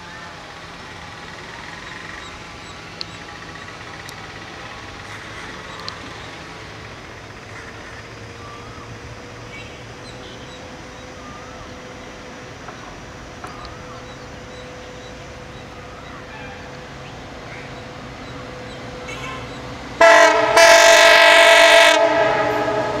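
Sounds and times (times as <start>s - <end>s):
locomotive engine rumble: 0.0s - 23.0s
bird chirps: 12.7s - 19.8s.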